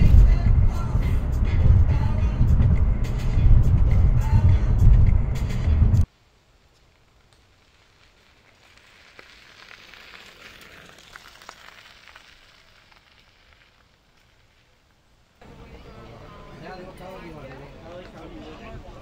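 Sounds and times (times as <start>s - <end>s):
loud music: 0.0s - 6.0s
car road noise: 0.0s - 6.1s
bicycle tyres on gravel: 6.0s - 15.4s.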